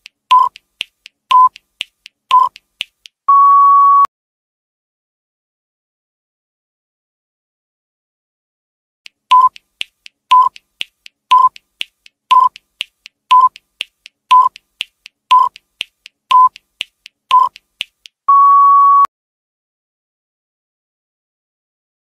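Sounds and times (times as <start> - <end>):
clock-like ticks: 0.0 - 3.2, 9.1 - 18.2
short timer beeps: 0.3 - 0.6, 1.3 - 1.6, 2.3 - 2.6, 9.3 - 9.6, 10.3 - 10.6, 11.3 - 11.6, 12.3 - 12.6, 13.3 - 13.6, 14.3 - 14.6, 15.3 - 15.6, 16.3 - 16.6, 17.3 - 17.6
long steady beep: 3.3 - 4.1, 18.3 - 19.1.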